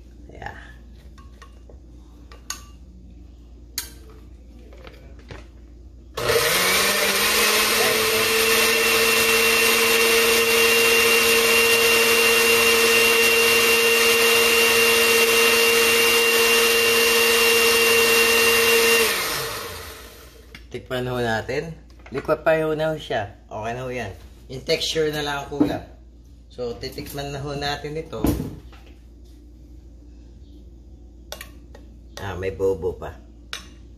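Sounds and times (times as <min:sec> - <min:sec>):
blender running: 0:06.2 - 0:20.5.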